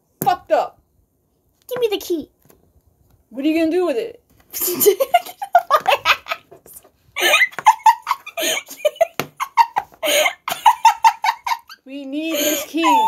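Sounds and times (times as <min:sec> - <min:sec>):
giggling laughter: 0:04.6 - 0:13.0.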